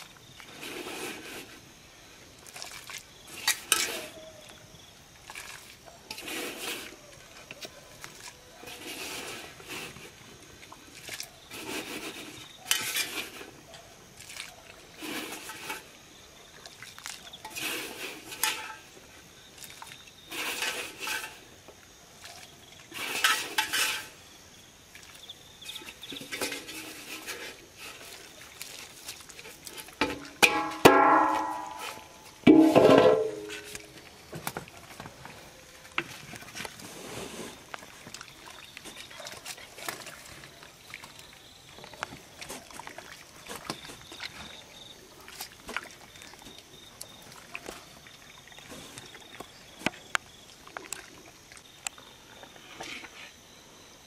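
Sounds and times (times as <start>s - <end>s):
utensils scraping a pot: 3.3s - 4.3s, 6.1s - 7.0s, 8.6s - 10.1s, 11.5s - 13.5s, 15.0s - 15.9s, 17.4s - 18.9s, 20.3s - 21.5s, 22.9s - 24.2s, 25.7s - 28.1s.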